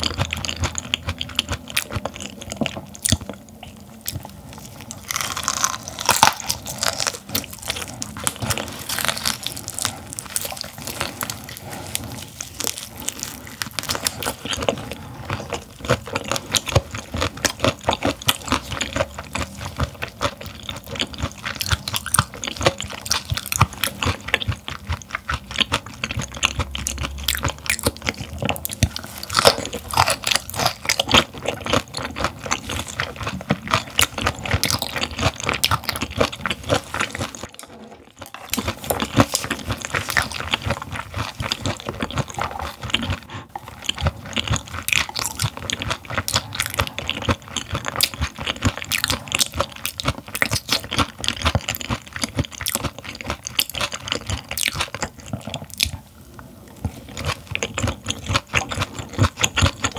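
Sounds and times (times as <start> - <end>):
crisp crunching chewing: 0.0 - 59.9.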